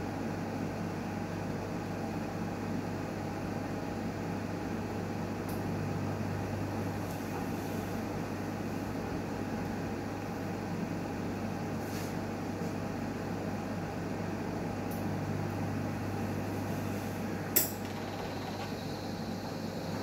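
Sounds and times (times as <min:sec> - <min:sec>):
autoclave mechanical hum: 0:00.0 - 0:20.0
sharp click: 0:17.6 - 0:17.9.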